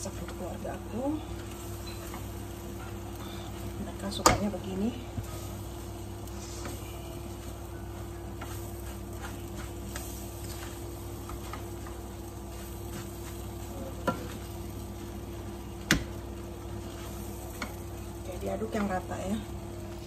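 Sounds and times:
fried rice sizzling in a wok: 0.0 - 20.0
steady low hum: 0.0 - 20.0
spatula scraping a pan: 5.2 - 15.1.

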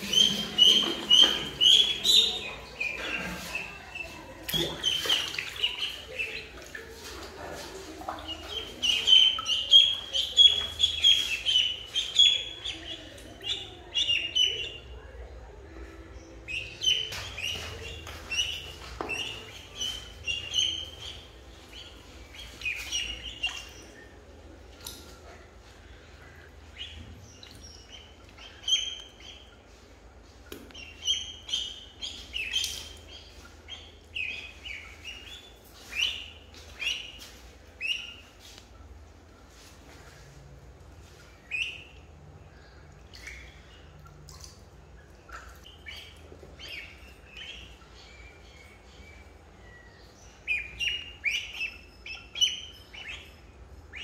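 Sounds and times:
ducklings peeping: 0.0 - 54.0.

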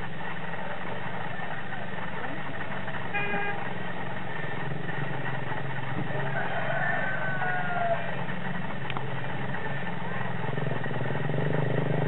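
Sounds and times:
rooster crowing: 6.1 - 8.2.

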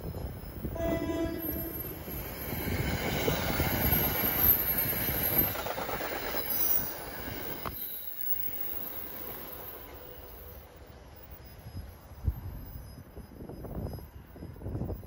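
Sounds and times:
train wheels rumbling on rails: 0.0 - 15.0
train horn: 0.7 - 2.2.

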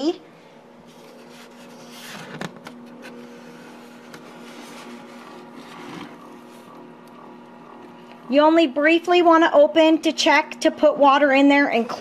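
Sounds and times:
incubator electric hum: 0.0 - 12.0
lid scraping: 3.9 - 6.4.

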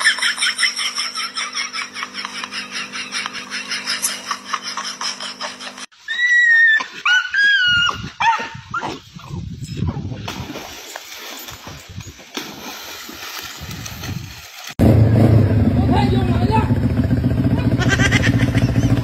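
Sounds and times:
bursts of laughter: 0.0 - 5.9, 17.5 - 19.0.

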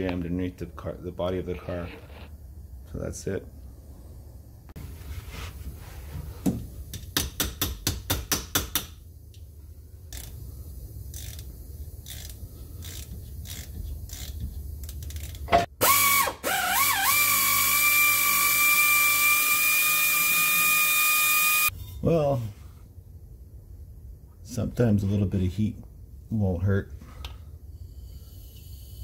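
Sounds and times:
hand ratchet clicking: 11.1 - 15.5
power ratchet whining: 11.1 - 21.7.

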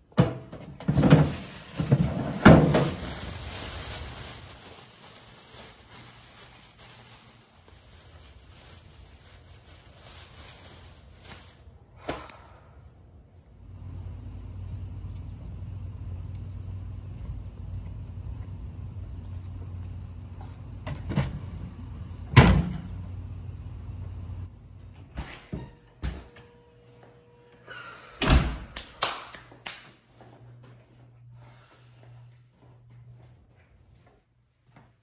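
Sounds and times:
steady low rumble: 2.4 - 25.0.

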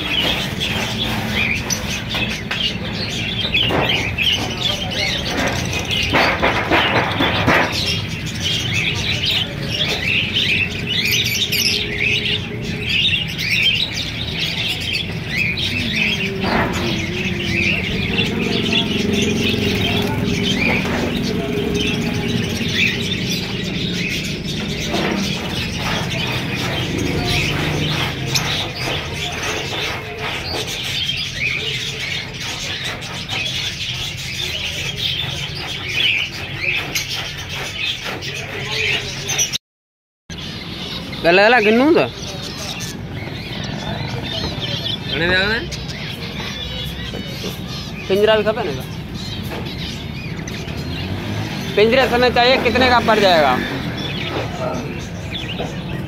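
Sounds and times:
finches chirping: 0.0 - 39.6.

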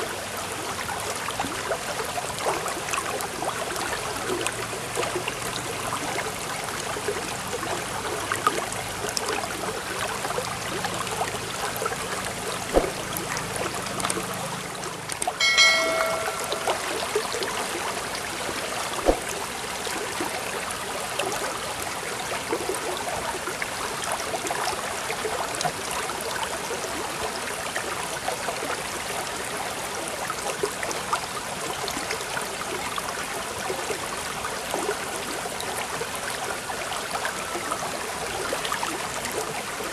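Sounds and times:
flowing water: 0.0 - 39.9
chime ringing: 15.4 - 17.4.

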